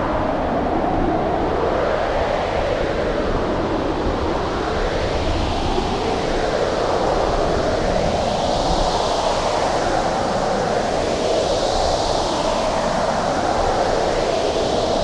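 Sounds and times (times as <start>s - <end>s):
blizzard wind blowing: 0.0s - 15.0s.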